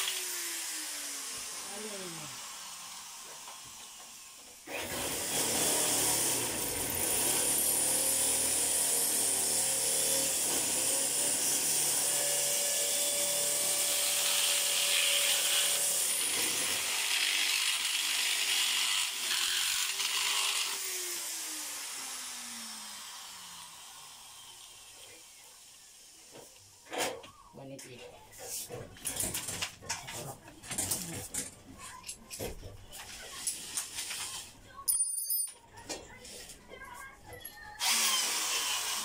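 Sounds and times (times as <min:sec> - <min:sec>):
electric power tool running: 0:00.0 - 0:26.5, 0:37.8 - 0:39.0.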